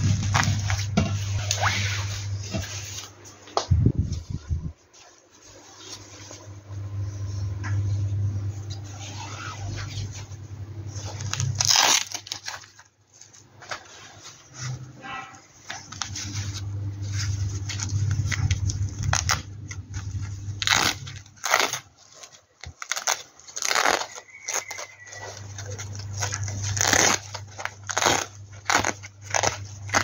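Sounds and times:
steady low hum: 0.0s - 22.1s.

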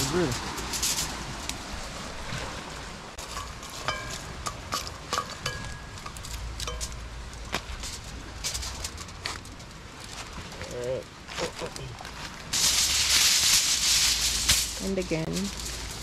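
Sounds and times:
dry leaves rustling: 0.0s - 16.0s
metal bowl clinking: 3.2s - 7.0s
foil crinkling: 12.6s - 16.0s.

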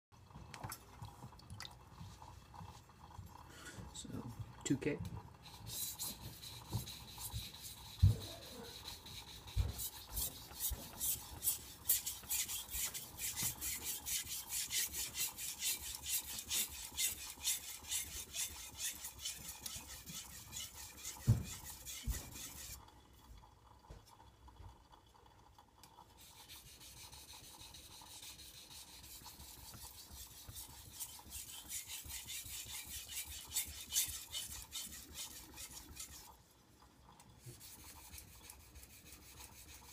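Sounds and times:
knife scraping on whetstone: 5.5s - 22.8s, 26.4s - 36.3s.

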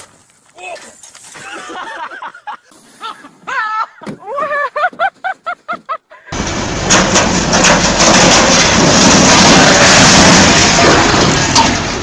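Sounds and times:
distorted rumbling rush with crackles: 6.4s - 12.0s
steel conveyor crashing down: 6.4s - 12.0s.

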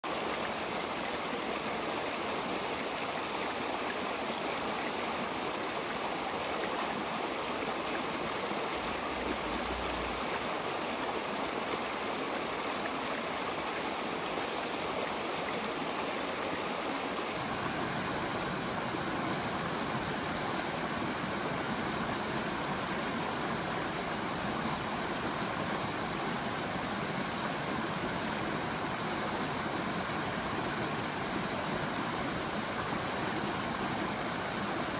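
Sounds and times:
creek babbling over rocks: 0.1s - 34.9s.

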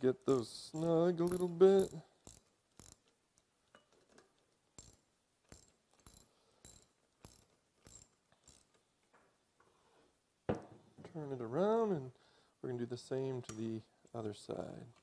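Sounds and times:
ratchet wrench clicking: 0.3s - 3.2s, 4.8s - 8.8s.

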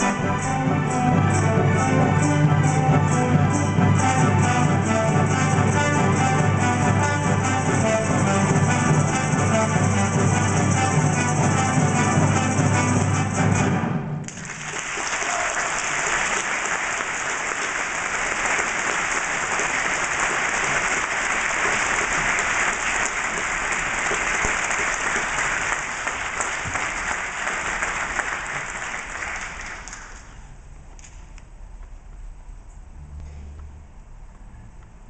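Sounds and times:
ballet music: 0.0s - 14.3s
audience applauding: 14.2s - 30.3s.

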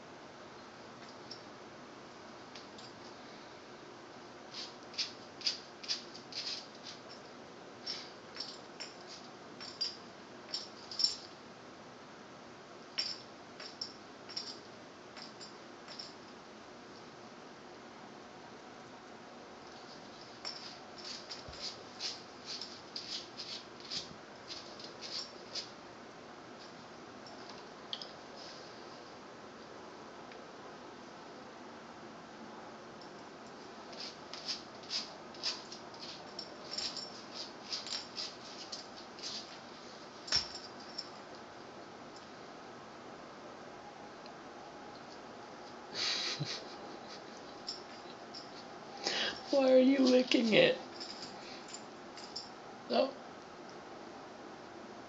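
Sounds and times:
dog claws clicking on tile: 4.6s - 7.2s.

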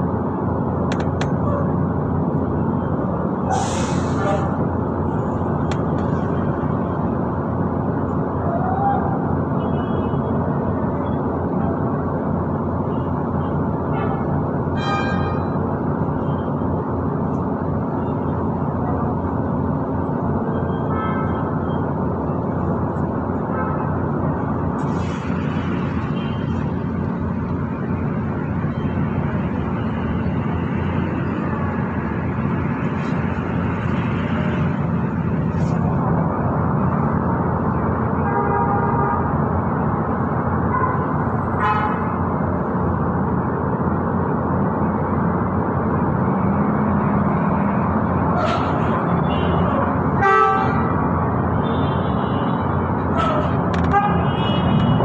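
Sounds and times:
road traffic noise: 0.0s - 55.0s
vehicle horn toots: 14.8s - 15.4s, 50.2s - 50.8s.

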